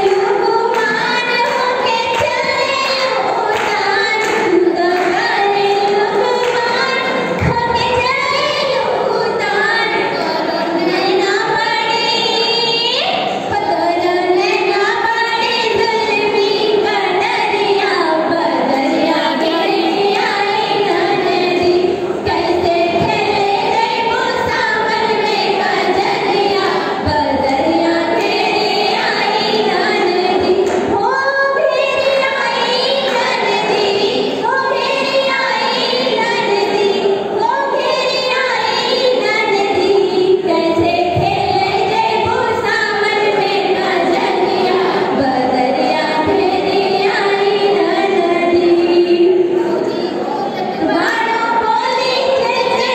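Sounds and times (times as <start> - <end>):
women singing folk song in unison: 0.0 - 52.9.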